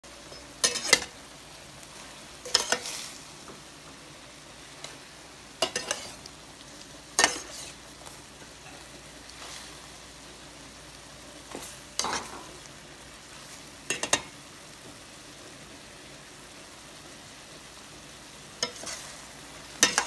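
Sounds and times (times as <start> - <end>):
faint sizzle: 0.0 - 20.0
spatula scraping a pan: 0.6 - 1.2, 1.9 - 3.3, 5.6 - 6.3, 7.1 - 7.9, 8.6 - 10.0, 11.5 - 12.6, 18.6 - 20.0.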